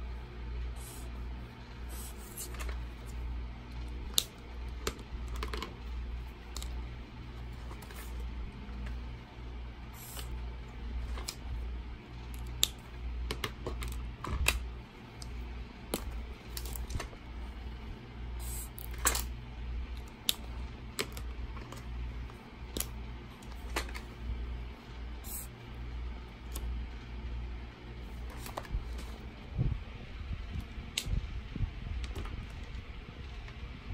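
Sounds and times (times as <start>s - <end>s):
steady low hum: 0.0s - 33.9s
marker pens being handled: 0.7s - 9.1s, 9.9s - 11.6s, 12.2s - 17.8s, 19.9s - 25.5s, 28.0s - 29.4s.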